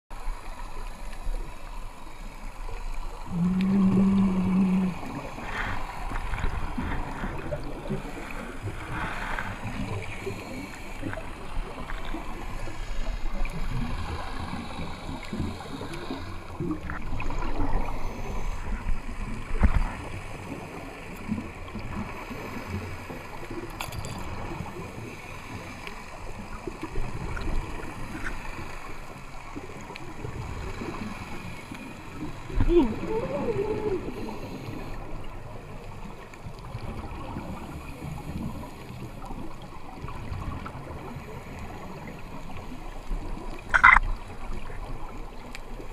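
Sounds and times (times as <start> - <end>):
underwater rumble: 0.1 - 45.9
scuba exhaust bubbles gurgling: 0.2 - 45.9
low hum: 3.3 - 5.8.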